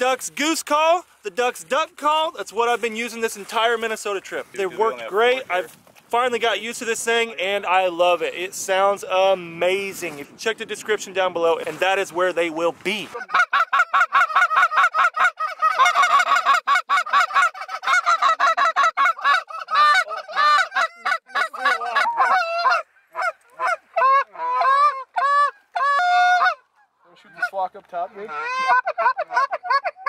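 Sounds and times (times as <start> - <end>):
goose call clucks and honks: 13.0 - 30.0.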